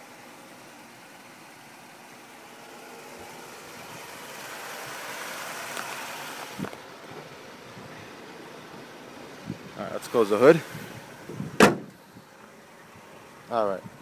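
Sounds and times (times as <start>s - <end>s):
car engine idling: 0.0s - 14.0s
brief thump: 11.6s - 12.0s.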